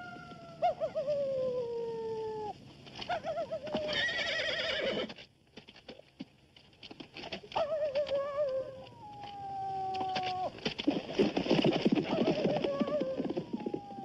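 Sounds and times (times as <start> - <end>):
horse whinnying: 3.7 - 5.2.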